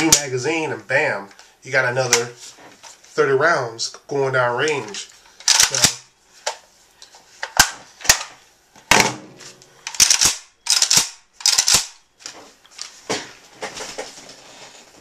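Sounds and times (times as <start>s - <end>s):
rifle action metallic clacks: 5.4s - 6.0s, 9.9s - 12.0s.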